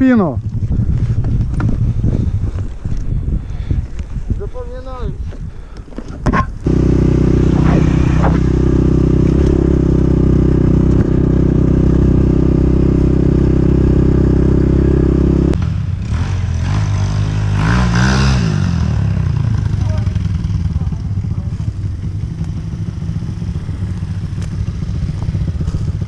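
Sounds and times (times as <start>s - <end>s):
dirt bike engine running: 6.6s - 26.0s
dirt bike revving: 6.6s - 26.0s.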